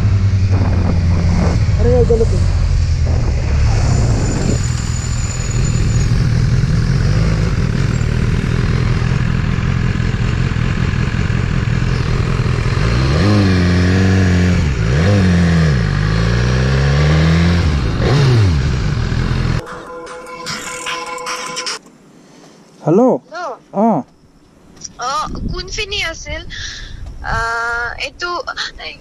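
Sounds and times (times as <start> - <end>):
wind rush: 0.0 - 6.8
motorcycle engine revving: 0.0 - 19.6.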